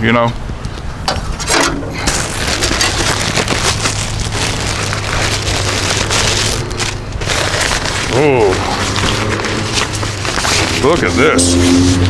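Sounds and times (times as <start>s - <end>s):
plastic bag crinkling: 1.9s - 11.3s.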